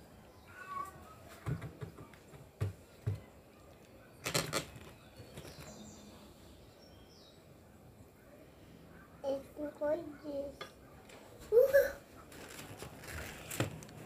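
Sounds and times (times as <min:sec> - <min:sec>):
faint bird chirps: 0:00.3 - 0:01.2
crackling handling noise: 0:03.7 - 0:05.8, 0:12.2 - 0:14.0.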